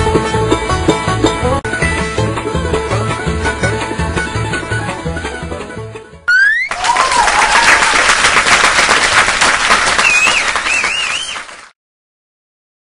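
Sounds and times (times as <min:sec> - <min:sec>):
wavering whistles: 0:06.3 - 0:06.8, 0:10.0 - 0:11.5
rising whistle: 0:06.3 - 0:07.2, 0:10.0 - 0:11.5
crowd clapping and cheering: 0:06.3 - 0:11.8.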